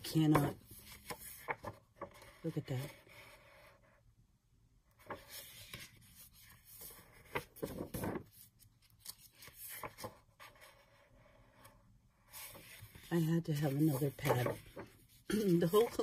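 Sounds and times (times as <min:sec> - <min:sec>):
paper rustling and sliding: 0:05.0 - 0:16.0.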